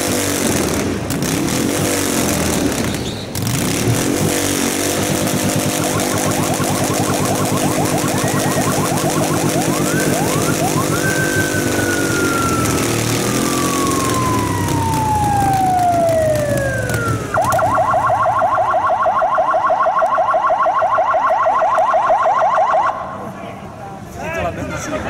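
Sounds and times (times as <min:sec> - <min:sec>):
motorcycle engine revving hard: 0:00.0 - 0:17.6
electronic siren wailing and yelping: 0:05.3 - 0:23.1.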